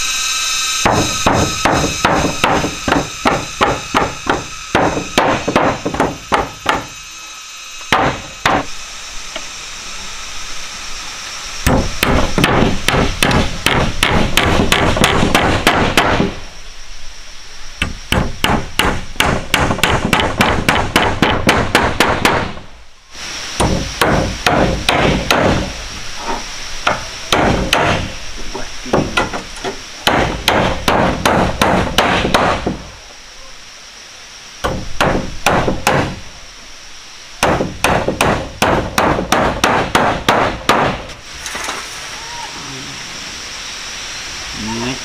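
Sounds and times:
hammering on wood: 0.8 - 6.9, 7.9 - 8.7, 11.6 - 16.4, 17.8 - 22.6, 23.6 - 25.7, 26.8 - 28.1, 28.9 - 29.4, 30.0 - 32.9, 34.6 - 36.2, 37.4 - 41.1.

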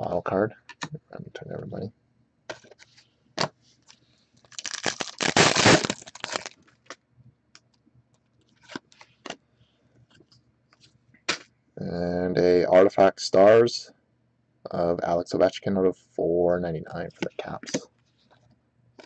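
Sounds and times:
foil wrapper tearing and crinkling: 4.4 - 6.6.

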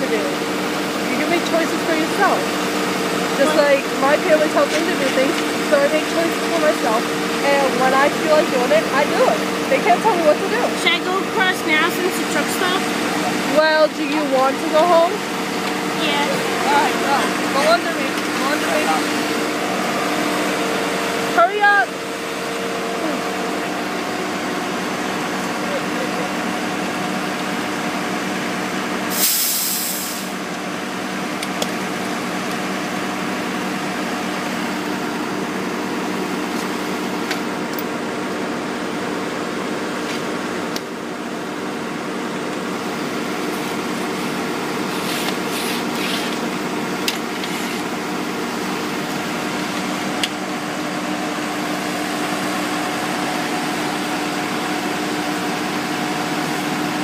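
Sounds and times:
paving machine engines droning: 0.0 - 57.0
sharp hiss of air: 29.1 - 30.4.

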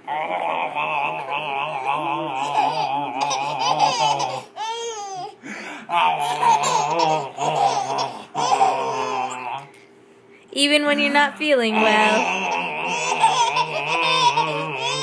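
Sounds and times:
baby laughing: 1.0 - 9.6, 11.7 - 15.0
baby squealing: 6.0 - 9.6, 11.8 - 15.0.

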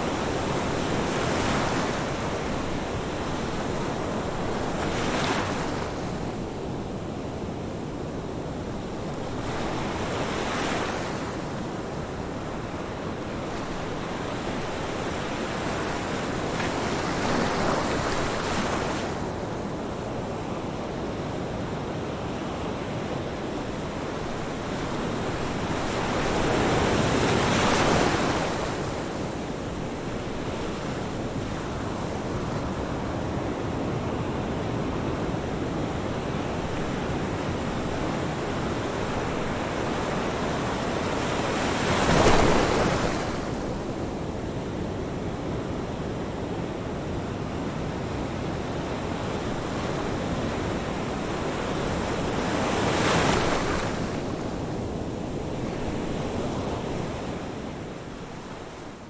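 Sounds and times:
waves breaking: 38.8 - 43.8.

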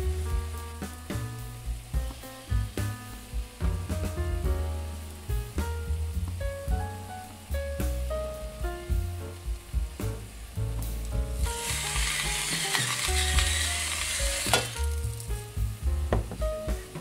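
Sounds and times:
vegetables sizzling in a frying pan: 0.0 - 17.0.

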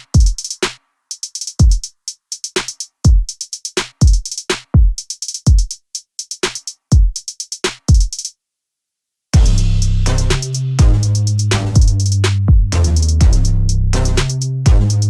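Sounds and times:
hi-hat ticks: 0.0 - 8.3, 9.4 - 15.0
deep kick drums: 9.4 - 14.0, 14.7 - 15.0
electronic music: 9.4 - 15.0.

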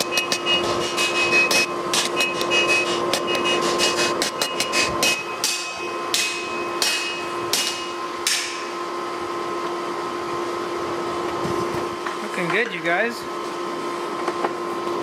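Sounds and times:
hammer striking steel on anvil: 0.0 - 8.8
steady mechanical hum: 0.0 - 15.0.

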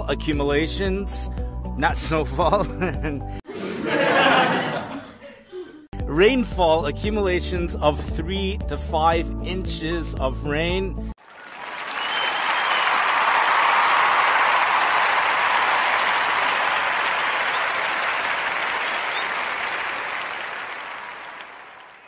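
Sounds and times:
crowd applause: 11.2 - 22.0
faint whistle: 12.0 - 13.0, 18.8 - 19.4.

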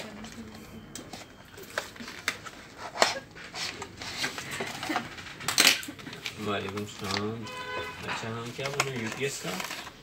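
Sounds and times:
packaging rustling: 1.5 - 10.0
packaging taps and clicks: 4.6 - 7.3, 8.4 - 9.9.

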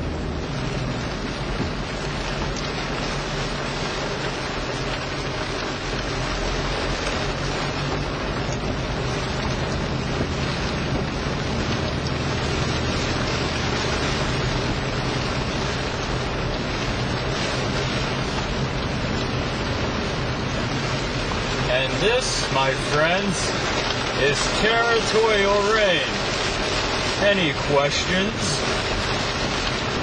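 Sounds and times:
heavy rain on car roof: 0.0 - 30.0
tyres hissing on wet road: 0.0 - 30.0.

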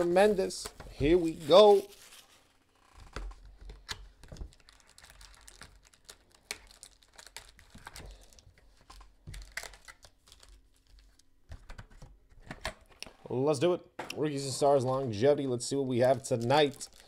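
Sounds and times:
plastic wrap crinkling: 0.0 - 11.4, 15.9 - 17.0
cardboard packs handled: 0.0 - 12.1, 15.9 - 17.0.

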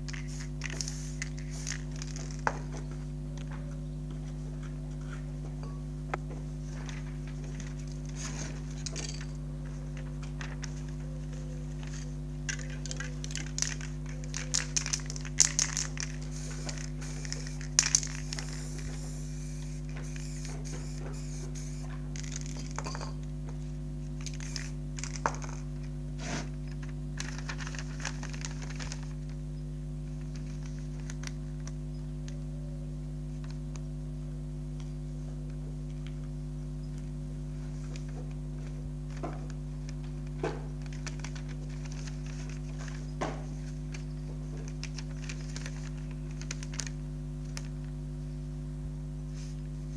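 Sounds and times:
paper rustling and crinkling: 0.0 - 3.2, 6.4 - 22.9, 24.0 - 29.4, 30.0 - 31.8, 37.5 - 48.0
steady low hum: 0.0 - 49.9.

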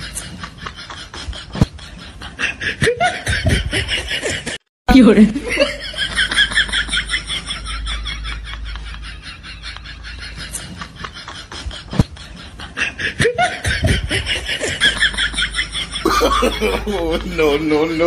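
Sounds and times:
person snickering laughter: 5.9 - 17.3.

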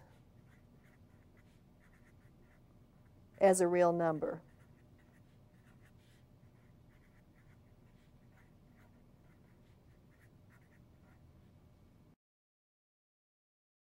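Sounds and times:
quiet room hum: 0.0 - 12.2
marker writing on paper: 0.4 - 11.2.

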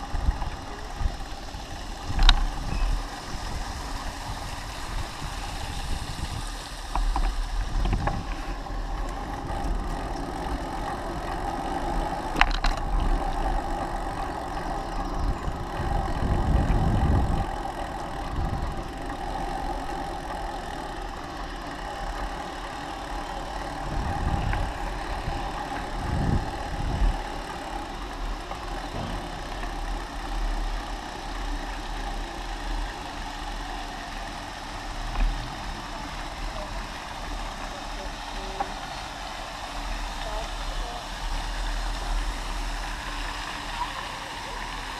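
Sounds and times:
wind buffeting microphone: 0.0 - 10.2, 10.8 - 19.8, 23.4 - 30.3
bicycle riding hum: 0.0 - 44.9.

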